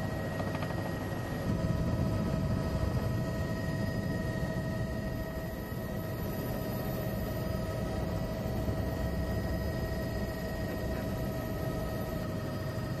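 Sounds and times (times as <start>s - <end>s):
aircraft engine drone in cabin: 0.0s - 13.0s.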